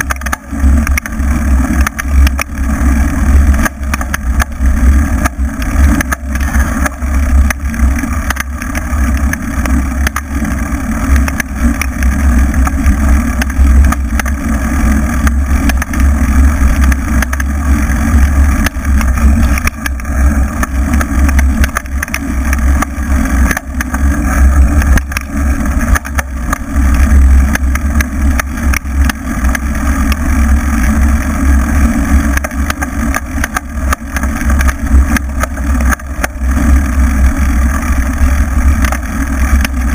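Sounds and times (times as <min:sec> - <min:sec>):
low rumble: 0:00.0 - 0:39.9.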